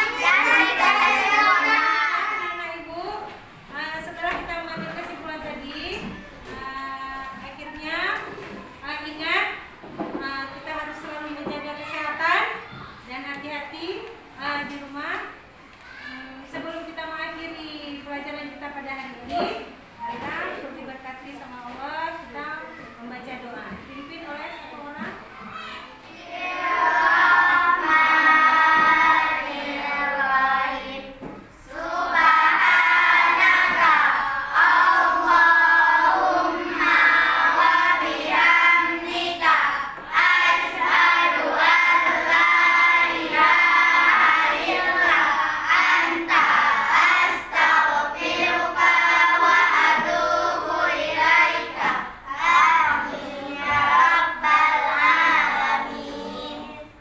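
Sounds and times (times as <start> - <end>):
children singing: 0.0 - 2.6, 26.1 - 57.0.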